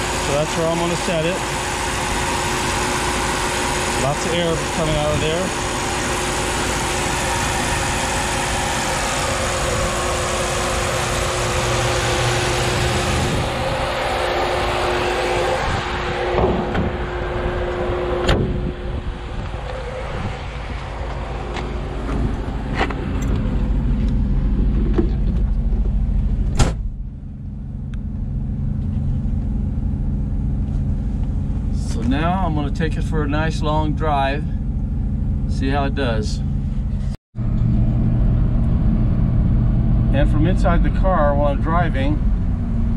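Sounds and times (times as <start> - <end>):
electric fan air rushing: 0.0 - 27.1
car engine idling: 0.0 - 42.9
car door shutting: 16.3 - 17.1, 18.2 - 18.7, 21.1 - 27.0
car hood clunking shut: 18.2 - 18.7, 26.5 - 26.9.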